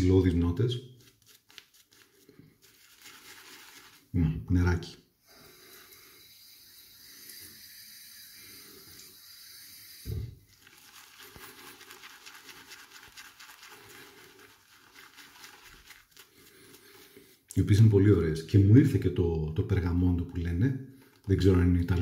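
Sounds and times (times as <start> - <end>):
shaving brush scrubbing lather: 0.0 - 4.1, 5.4 - 17.9
water running: 5.4 - 18.1.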